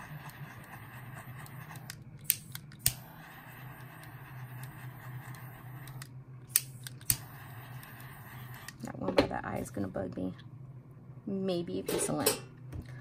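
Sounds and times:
steady low hum: 0.0s - 13.0s
lighter clicks: 5.4s - 8.0s
torch gas hiss: 6.6s - 8.8s.

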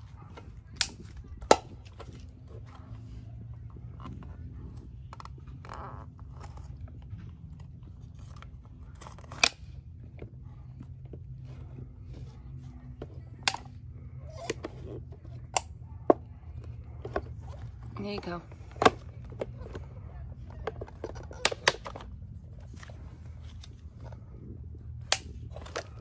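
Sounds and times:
plastic clacks: 3.7s - 24.2s.

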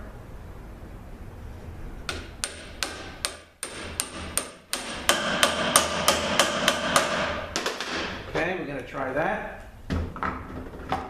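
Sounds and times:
hammer striking metal: 2.1s - 8.2s.

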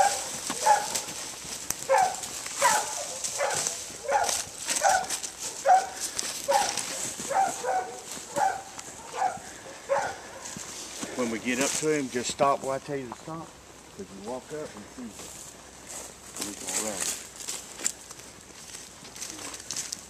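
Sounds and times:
dogs barking: 0.0s - 10.7s
dry brush crackling underfoot: 0.0s - 20.0s.

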